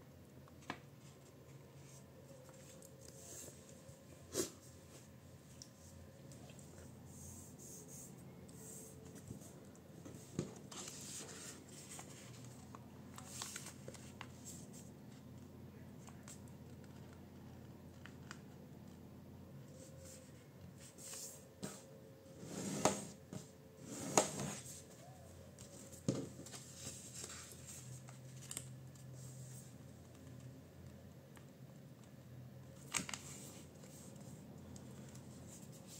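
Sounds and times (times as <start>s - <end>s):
paper being folded: 10.7s - 14.8s
paper crinkling: 10.7s - 14.8s.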